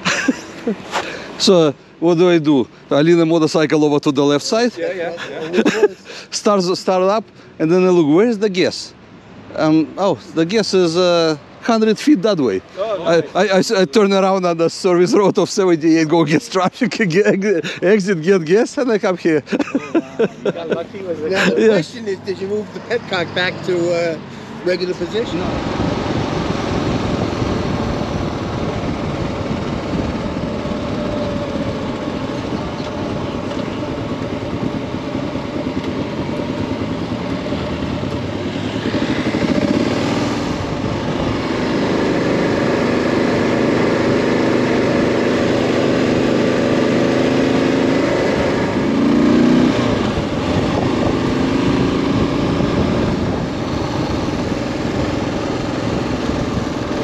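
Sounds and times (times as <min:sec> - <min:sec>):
motorcycle engine revving: 0:22.5 - 0:57.0.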